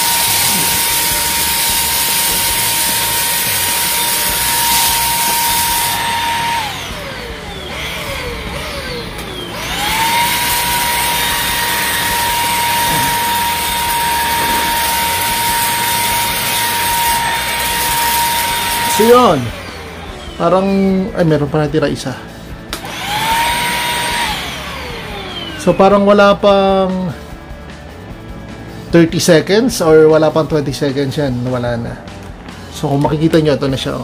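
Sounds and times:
stick vacuum motor whine: 0:00.0 - 0:21.6, 0:22.3 - 0:27.0.

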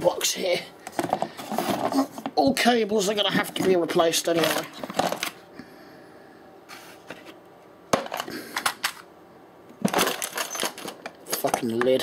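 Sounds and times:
tools rattling inside box: 0:09.9 - 0:11.7.

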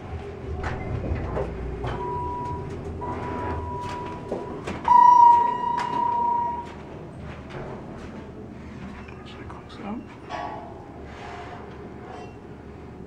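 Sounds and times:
elevator doors sliding open: 0:00.0 - 0:09.4, 0:10.0 - 0:13.0
elevator car rumbling: 0:00.0 - 0:13.0
elevator clicks: 0:00.6 - 0:07.7
steady high tone: 0:01.9 - 0:06.8.

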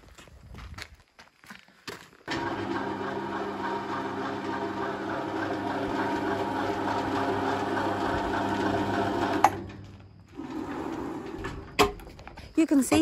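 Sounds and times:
small power tool running: 0:02.3 - 0:09.6.

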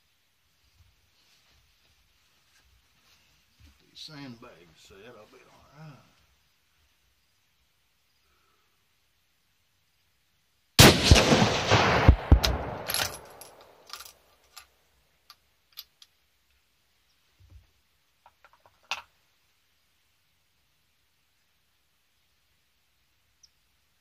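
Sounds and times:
rifle shot with echo: 0:10.8 - 0:13.8.

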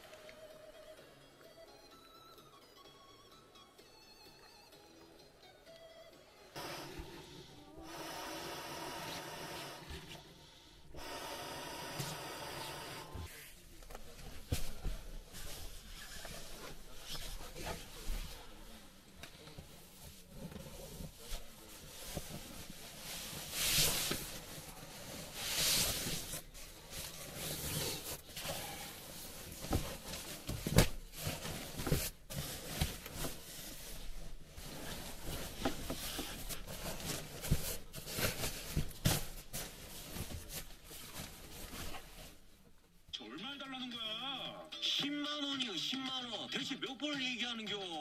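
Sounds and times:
objects rustling and rubbing: 0:08.0 - 0:43.0.

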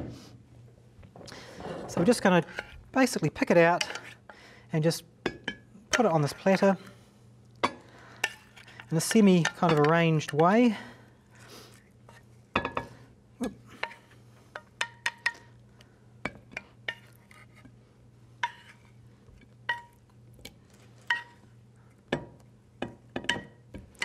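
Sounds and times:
spatula clinking on pan: 0:19.7 - 0:19.9, 0:21.1 - 0:21.4.

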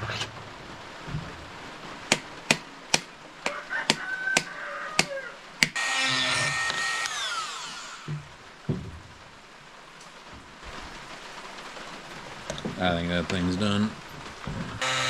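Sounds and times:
rotary tool motor whining: 0:05.8 - 0:08.2, 0:14.8 - 0:15.0.

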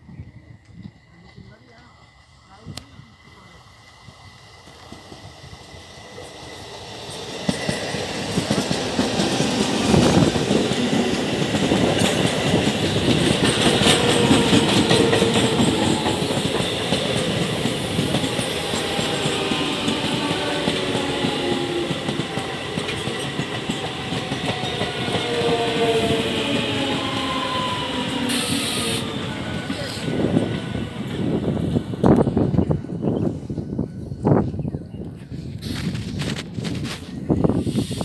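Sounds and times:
train wheels clattering over rail joints: 0:07.1 - 0:25.9.

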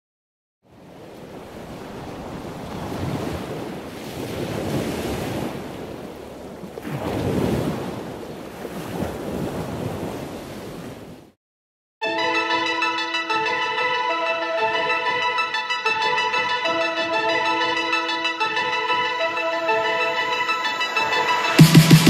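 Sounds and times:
ocean waves washing in: 0:00.7 - 0:11.4.

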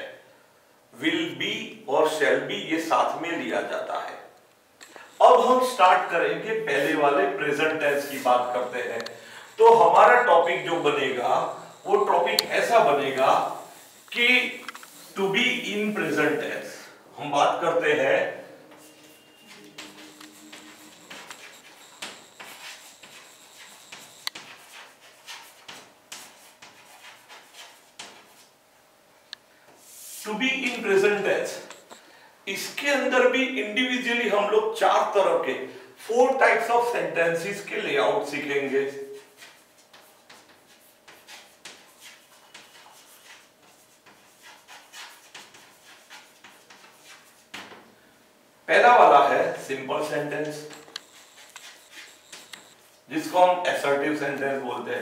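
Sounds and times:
chalk scratching on blackboard: 0:05.1 - 0:16.4, 0:18.7 - 0:28.6, 0:37.6 - 0:47.8, 0:50.0 - 0:53.6.

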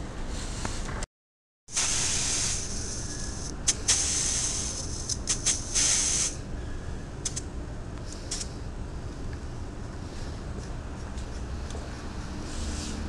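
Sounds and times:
compressed air hissing: 0:01.7 - 0:06.4.

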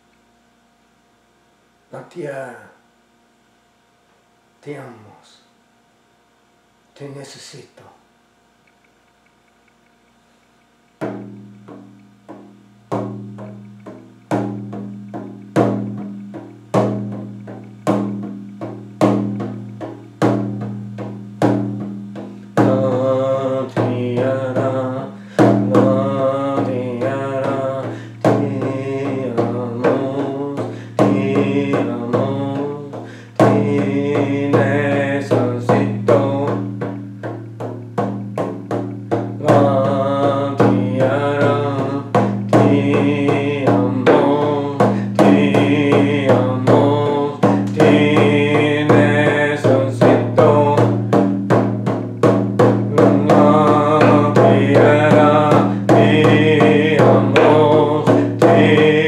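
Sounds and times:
man chanting: 0:01.9 - 0:02.8, 0:04.6 - 0:05.5, 0:07.0 - 0:08.1, 0:22.5 - 0:36.9, 0:39.4 - 0:51.1, 0:52.9 - 0:59.0
frame drum beating: 0:10.9 - 0:59.0.

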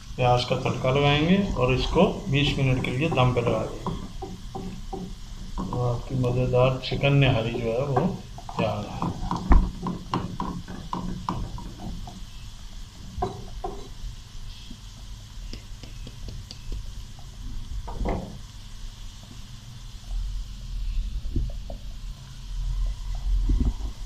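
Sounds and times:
onions sizzling in oil: 0:00.0 - 0:24.0
spatula knocking against pan: 0:02.7 - 0:05.8, 0:07.6 - 0:12.2, 0:13.2 - 0:13.9.

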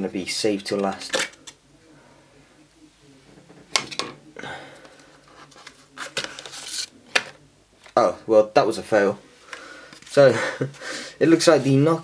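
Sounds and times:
packaging rustling and scraping: 0:05.2 - 0:07.3.

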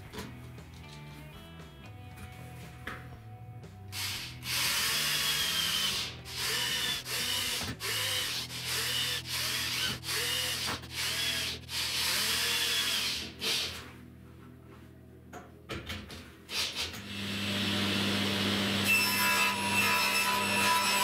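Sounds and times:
electric drill boring into wood: 0:04.0 - 0:13.8, 0:16.5 - 0:21.0.

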